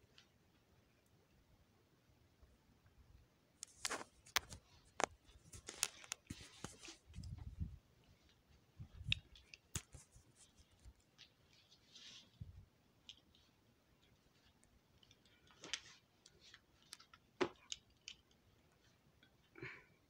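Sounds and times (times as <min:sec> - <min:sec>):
phone handling clicks and rustles: 0:03.6 - 0:07.4.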